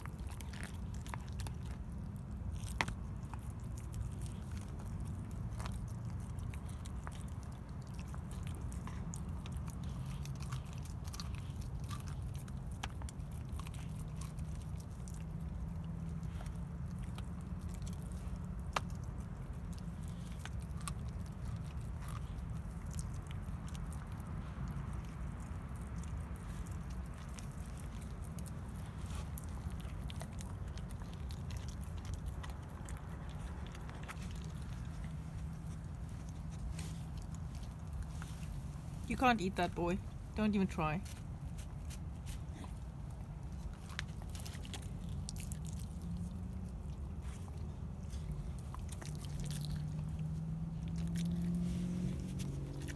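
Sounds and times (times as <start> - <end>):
dog chewing bones: 0.0 - 52.9
low steady hum: 0.0 - 52.9.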